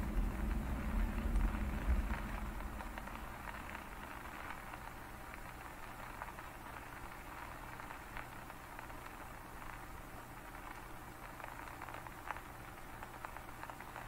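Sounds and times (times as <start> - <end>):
heavy rain on flooded road: 0.1 - 7.9.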